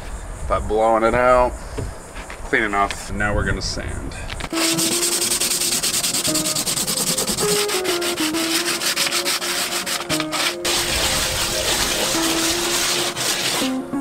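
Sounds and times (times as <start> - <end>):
hand sanding boat hull: 4.5 - 14.0.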